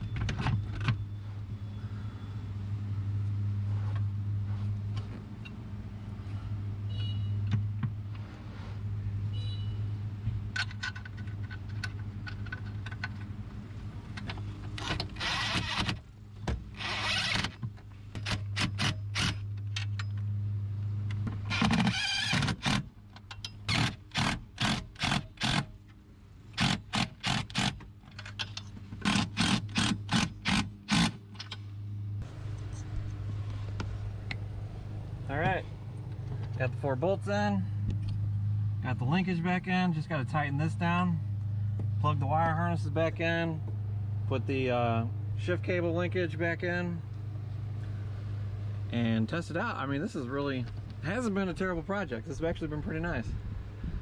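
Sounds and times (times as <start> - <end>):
steady low hum: 22.4 - 54.0.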